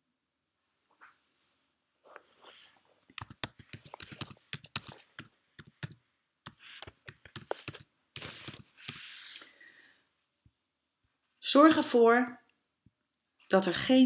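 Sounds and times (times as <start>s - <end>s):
keyboard keystrokes clicking: 3.2s - 9.0s.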